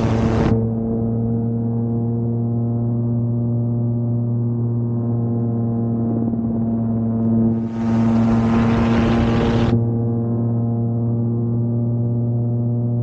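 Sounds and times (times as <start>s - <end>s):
aircraft engine and propeller droning: 0.0s - 13.0s
wind noise rushing: 7.6s - 9.8s.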